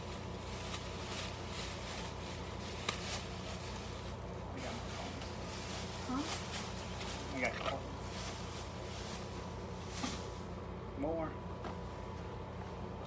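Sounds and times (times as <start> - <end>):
plastic bag rustling: 0.0 - 10.7
steady low hum: 0.0 - 13.0.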